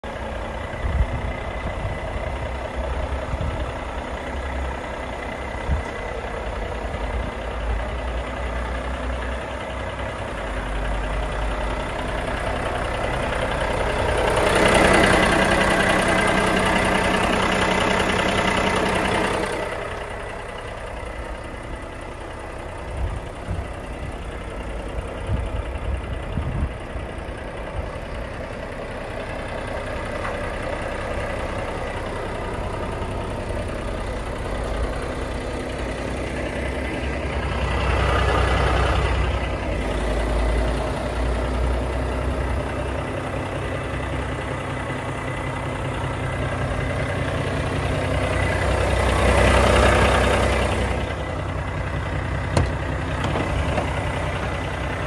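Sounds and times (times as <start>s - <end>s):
diesel truck engine idling: 0.0s - 55.0s
short knocks: 52.5s - 54.0s.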